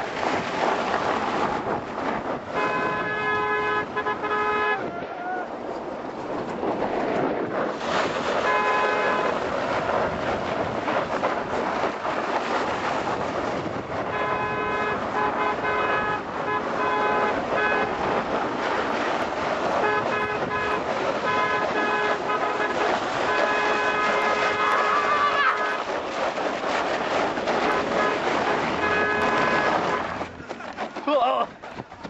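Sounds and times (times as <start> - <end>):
steady rushing noise: 0.0 - 32.0
horn blasts: 2.5 - 4.9, 8.4 - 9.4, 13.9 - 18.3, 19.7 - 25.9, 27.5 - 30.4.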